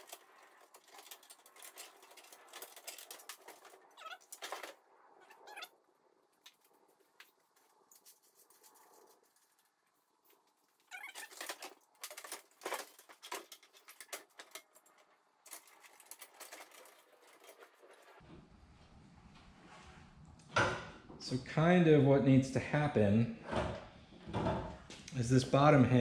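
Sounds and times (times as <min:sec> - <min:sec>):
short squeaks: 0:03.9 - 0:04.6, 0:10.8 - 0:11.7.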